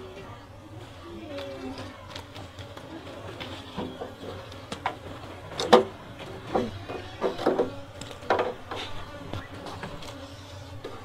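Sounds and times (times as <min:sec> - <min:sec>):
wooden knocks and clunks: 0:05.6 - 0:08.9.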